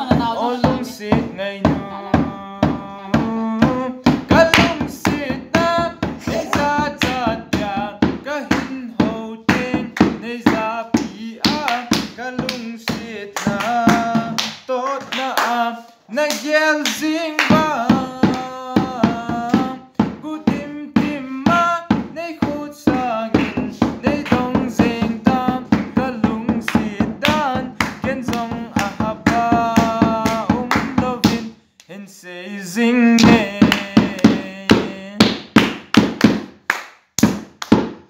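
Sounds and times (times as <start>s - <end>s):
man singing: 0.0s - 35.7s.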